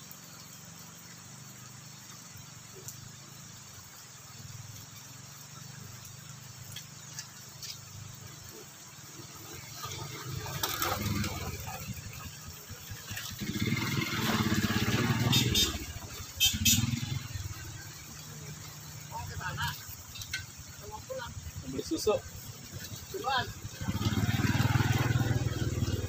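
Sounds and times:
motorcycle engine approaching: 0.0s - 26.0s.

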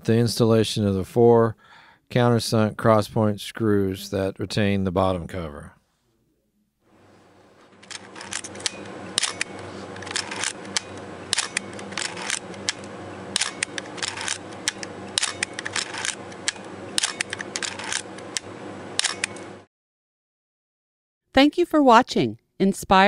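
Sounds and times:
film advance lever ratcheting: 7.8s - 19.4s
camera shutter clacks: 7.8s - 19.5s.

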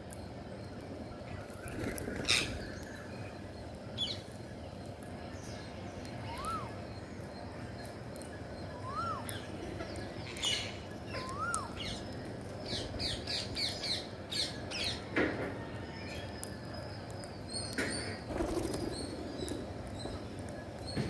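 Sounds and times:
bird wings flapping: 18.3s - 19.0s.

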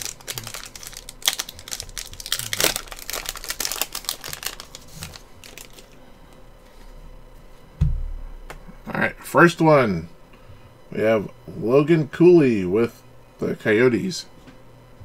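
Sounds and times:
foil pack crinkling: 0.0s - 6.1s.

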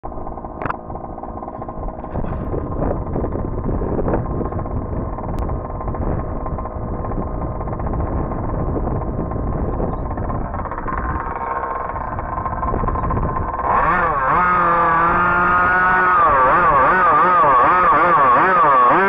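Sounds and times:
small two-stroke engine running: 0.1s - 19.0s.

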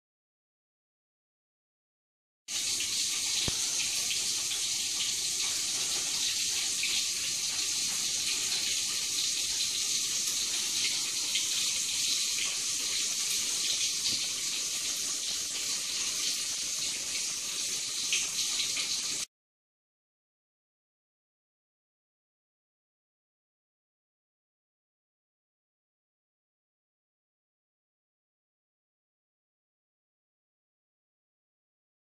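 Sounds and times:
steamer hissing steam: 2.7s - 12.0s.

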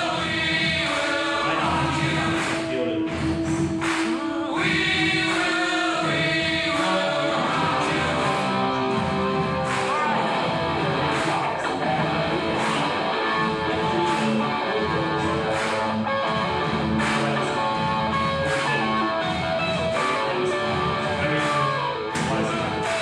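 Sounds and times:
person singing: 0.0s - 23.0s
rock guitar playing: 4.6s - 23.0s.

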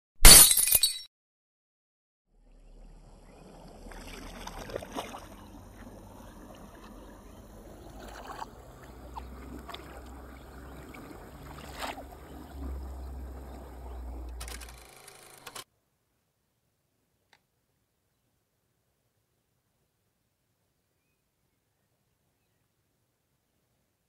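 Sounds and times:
water sloshing and splashing: 3.4s - 14.4s.

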